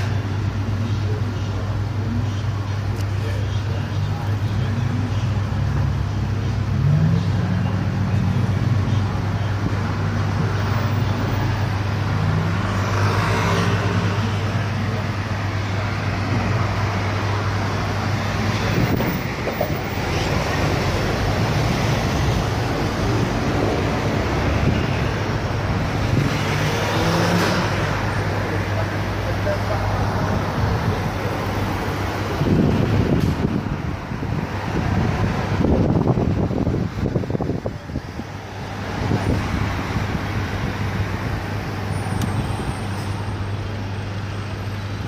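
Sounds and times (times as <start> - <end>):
road traffic: 0.0 - 45.0
vehicle passing by: 18.2 - 33.6.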